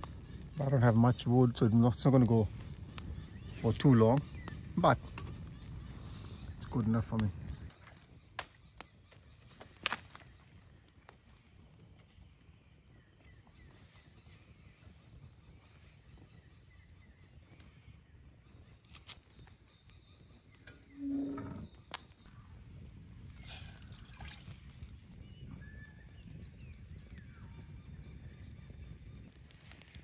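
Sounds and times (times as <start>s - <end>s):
faint high bird calls: 11.3s - 22.7s.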